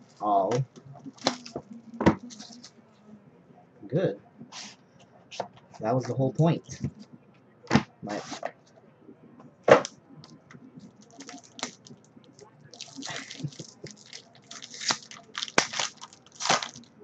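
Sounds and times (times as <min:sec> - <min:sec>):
foil pack tearing and crinkling: 0:12.8 - 0:16.9
cards rustling: 0:12.8 - 0:17.0.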